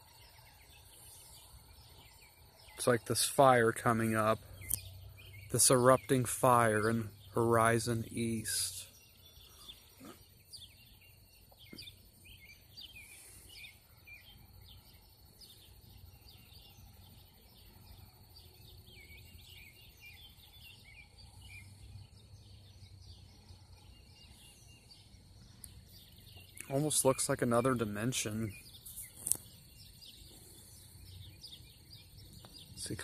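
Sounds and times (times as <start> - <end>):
songbirds chirping: 0.0 - 33.0.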